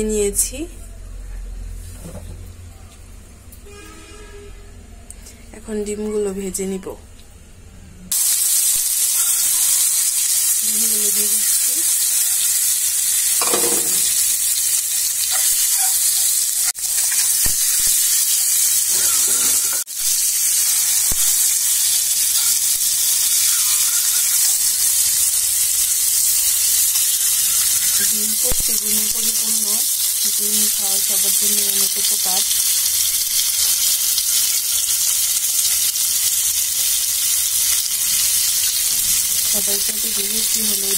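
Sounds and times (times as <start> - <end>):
eggs sizzling in hot oil: 8.1 - 40.9.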